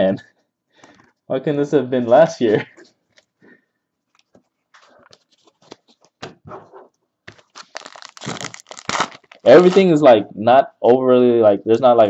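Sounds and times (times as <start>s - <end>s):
foil wrapper crinkling: 7.3s - 9.9s.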